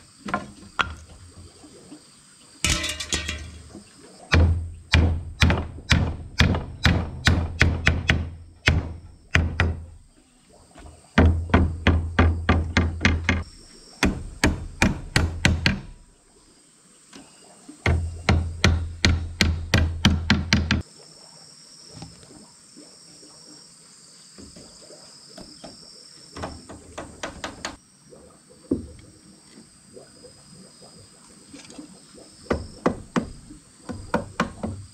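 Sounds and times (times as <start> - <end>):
hammer driving nails into wood: 4.3 - 10.0, 14.0 - 15.9, 17.9 - 20.8.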